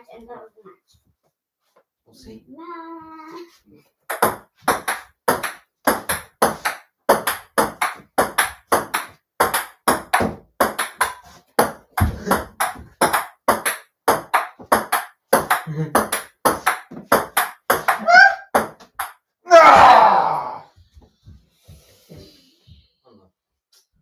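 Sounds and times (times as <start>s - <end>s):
ping-pong ball bouncing on table: 4.1s - 19.2s
ping-pong ball clicking off paddles: 4.1s - 19.2s.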